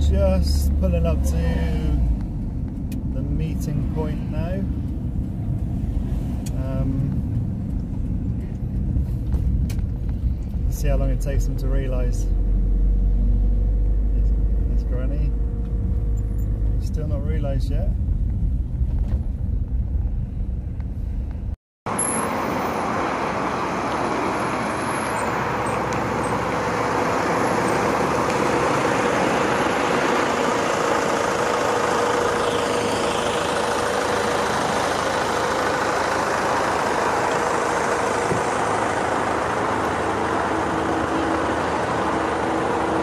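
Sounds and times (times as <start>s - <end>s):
van engine rumbling: 0.0s - 43.0s
road noise hiss: 3.2s - 7.4s, 21.9s - 43.0s.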